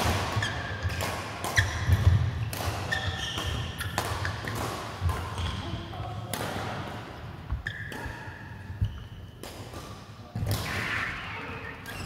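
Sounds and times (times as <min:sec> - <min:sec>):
racket hitting ball: 0:00.0 - 0:05.6
shoes squeaking: 0:00.3 - 0:04.6, 0:07.5 - 0:09.4.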